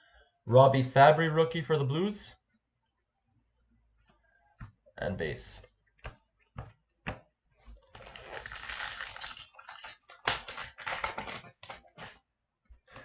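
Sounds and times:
foil wrapper crinkling and tearing: 0:07.8 - 0:12.2.

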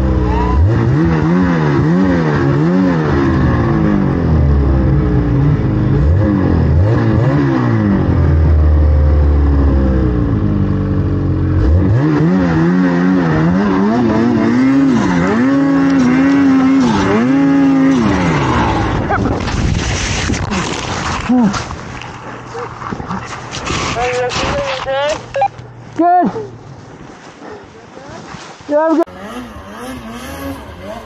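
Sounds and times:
snowmobile engine revving: 0:00.0 - 0:21.4, 0:28.7 - 0:31.0.

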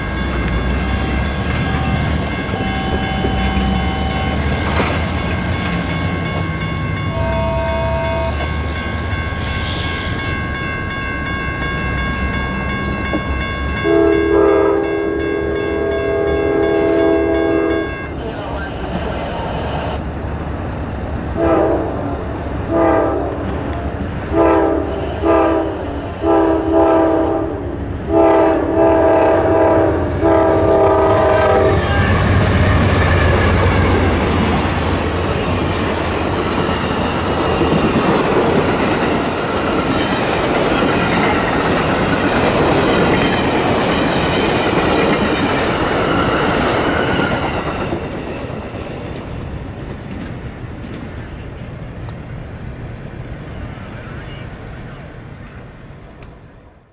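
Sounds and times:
train rumbling past: 0:00.0 - 0:56.9
train air horn blasts: 0:07.1 - 0:08.5, 0:13.8 - 0:17.9, 0:21.4 - 0:22.1, 0:22.7 - 0:23.5, 0:24.3 - 0:33.3.

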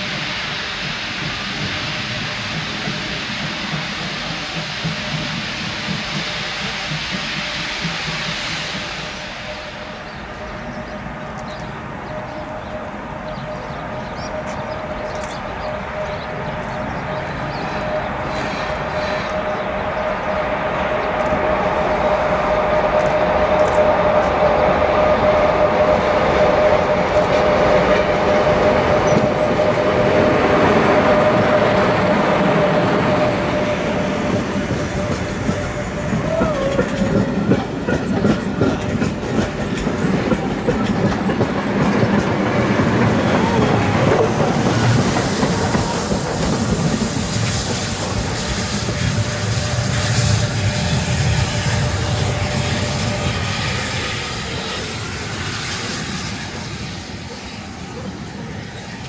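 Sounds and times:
high squeal: 0:00.0 - 0:38.9
train wheels clicking over rail joints: 0:00.0 - 0:53.2.

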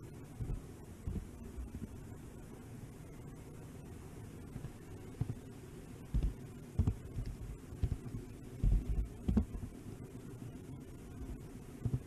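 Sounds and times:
dull thumps and knocks: 0:00.4 - 0:01.3, 0:06.1 - 0:09.7.

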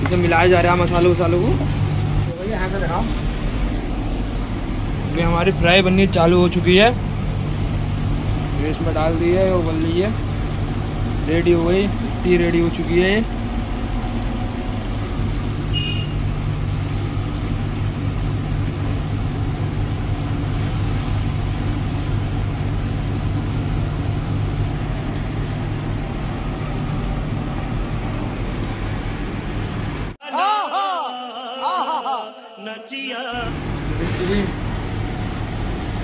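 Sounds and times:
low mechanical hum: 0:00.0 - 0:30.2, 0:33.4 - 0:36.0
hiss: 0:20.4 - 0:22.3.

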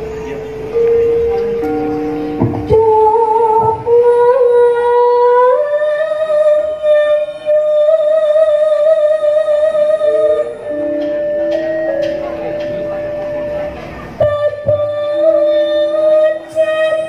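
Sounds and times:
woman singing long notes: 0:00.7 - 0:17.0.

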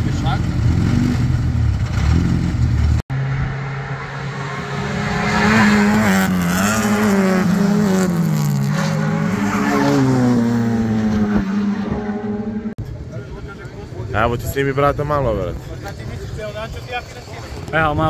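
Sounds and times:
race car engine revving: 0:00.0 - 0:12.8.

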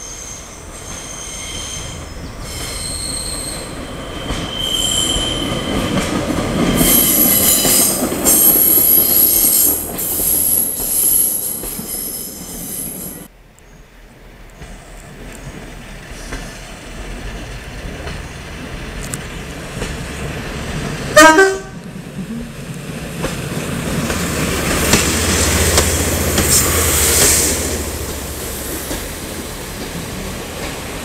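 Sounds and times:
train horn blast: 0:21.2 - 0:21.8
wheels clicking over rail joints: 0:21.8 - 0:31.0.

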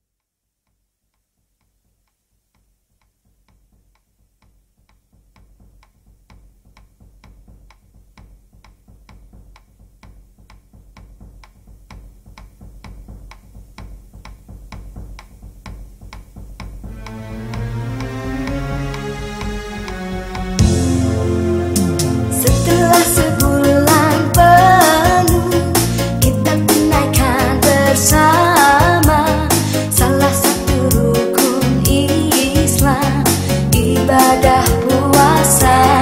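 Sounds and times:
low music bed: 0:15.0 - 0:36.0.

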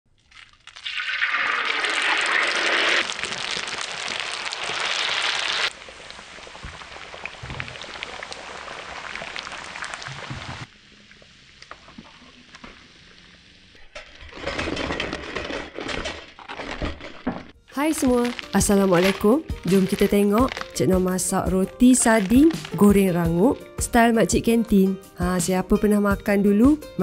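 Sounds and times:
bread sizzling in hot oil: 0:00.2 - 0:15.0.

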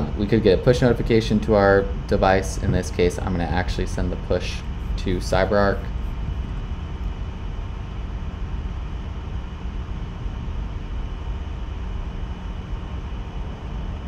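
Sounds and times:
faint constant hum: 0:00.0 - 0:14.0
low background rumble and hiss: 0:00.0 - 0:14.0.

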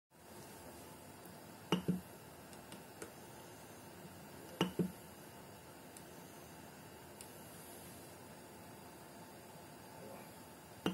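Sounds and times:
faint steady hiss: 0:00.2 - 0:10.9.

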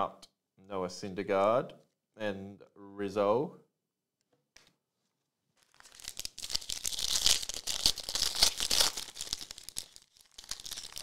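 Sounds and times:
foil wrapper tearing and crinkling: 0:05.6 - 0:11.0.

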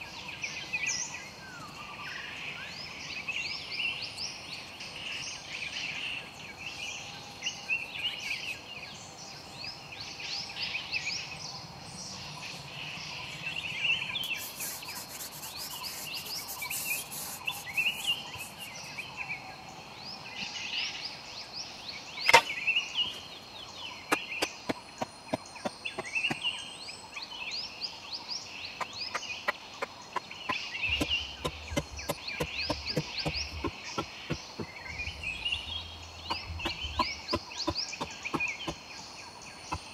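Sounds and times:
birds chirping: 0:00.0 - 0:39.9
mallet knocking wooden stakes: 0:30.5 - 0:34.8, 0:36.3 - 0:38.8.

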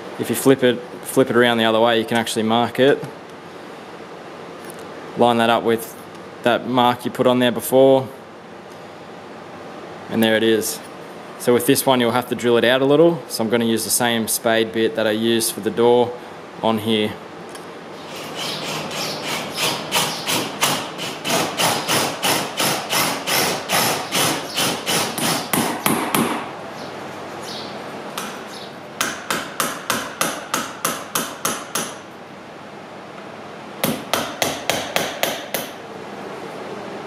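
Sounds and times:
hammer striking a chisel: 0:18.6 - 0:26.5, 0:28.2 - 0:28.4, 0:29.0 - 0:32.0, 0:33.8 - 0:35.8.

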